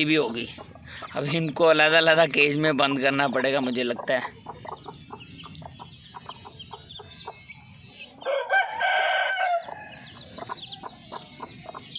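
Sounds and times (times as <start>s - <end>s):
chicks peeping: 0.0s - 11.9s
hen clucking: 0.0s - 11.9s
rooster crowing: 7.9s - 11.8s.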